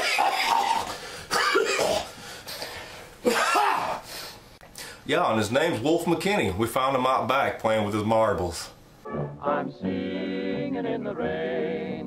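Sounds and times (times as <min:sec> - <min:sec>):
man coughing: 0:00.0 - 0:02.1, 0:03.2 - 0:04.0.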